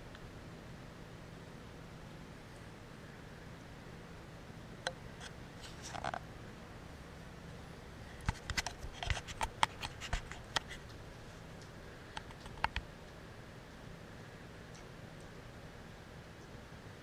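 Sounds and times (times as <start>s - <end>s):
kittens' claws scratching blanket: 5.2s - 6.2s, 8.2s - 11.5s.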